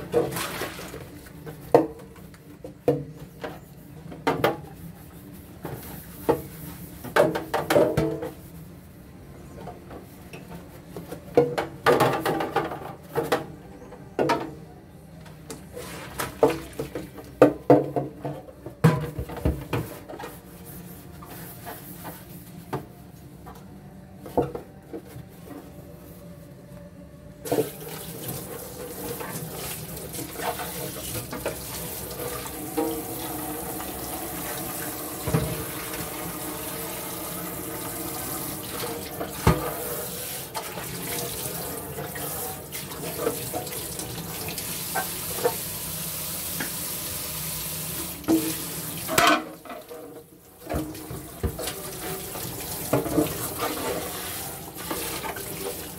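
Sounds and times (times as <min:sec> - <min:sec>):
sponge scrubbing plastic bins: 0:00.0 - 0:08.6, 0:15.7 - 0:22.9, 0:27.5 - 0:46.9, 0:48.0 - 0:55.9
tap water running: 0:27.5 - 0:55.9.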